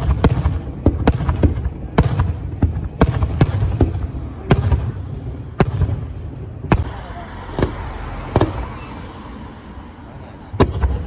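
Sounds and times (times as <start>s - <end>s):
small firework pops: 0.0s - 5.0s, 5.6s - 8.9s, 10.5s - 11.0s
firework bangs: 0.0s - 11.0s.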